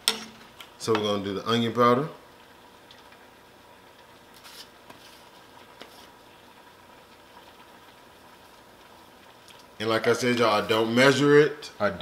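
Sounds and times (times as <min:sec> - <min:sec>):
steady low hiss: 0:00.0 - 0:12.0
spice shaker rustle: 0:04.2 - 0:06.4.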